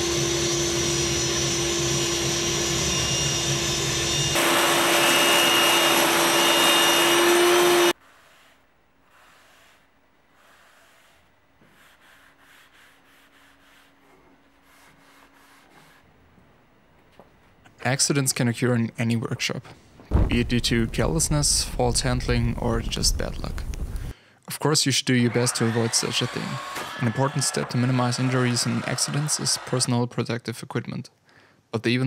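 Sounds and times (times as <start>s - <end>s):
table saw running: 0.0s - 8.0s, 25.1s - 30.0s
sponge rubbing on wood: 8.0s - 16.1s.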